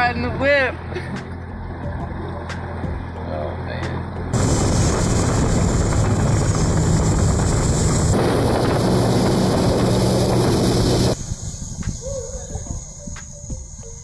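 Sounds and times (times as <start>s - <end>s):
outboard motor running: 0.0s - 11.2s
wind noise on microphone: 4.3s - 14.0s.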